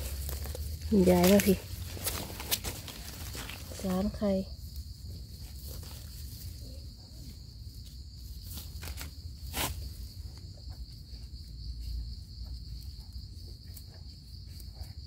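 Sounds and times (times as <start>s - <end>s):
insects droning: 0.0s - 15.0s
knife scraping soil: 8.5s - 10.0s.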